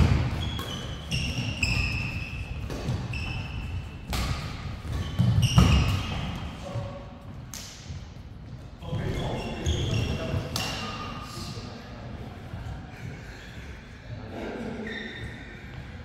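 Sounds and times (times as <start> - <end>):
rackets hitting shuttlecock: 0.0 - 3.4, 4.0 - 6.4
shoes squeaking on court floor: 0.0 - 6.9, 8.4 - 11.0, 14.7 - 15.9.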